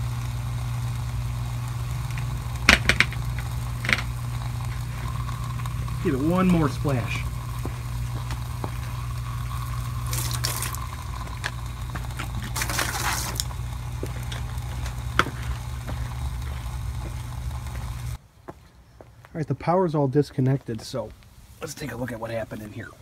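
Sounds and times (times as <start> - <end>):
sharp electrical snaps: 0.0 - 18.2
sizzling hiss of arcing: 0.0 - 18.2
television electrical hum: 0.0 - 18.2.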